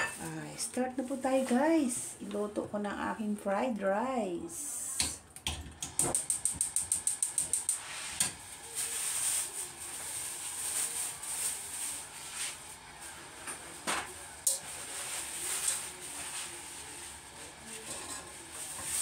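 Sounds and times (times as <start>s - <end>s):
cooktop igniter clicks: 5.0s - 8.4s
hot wok hissing: 6.1s - 13.5s, 14.4s - 19.0s.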